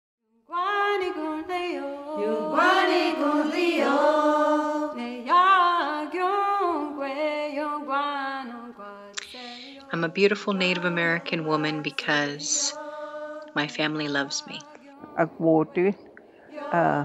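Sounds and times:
person singing solo: 0:02.2 - 0:02.7.

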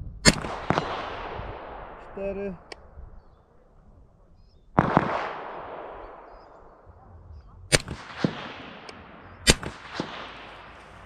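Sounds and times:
rifle shots: 0:00.2 - 0:02.7, 0:04.7 - 0:06.9, 0:07.7 - 0:11.0
gunshot echo: 0:00.2 - 0:02.8, 0:04.7 - 0:06.9, 0:07.7 - 0:11.0.

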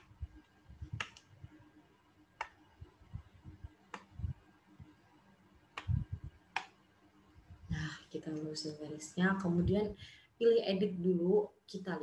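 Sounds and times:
soft low thuds: 0:05.8 - 0:06.4.

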